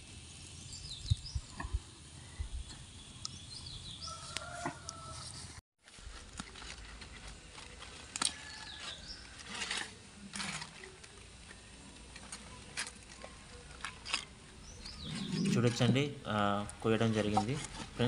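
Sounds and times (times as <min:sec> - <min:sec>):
leaves rustling: 0:03.5 - 0:18.0
bird chirping: 0:14.6 - 0:16.1.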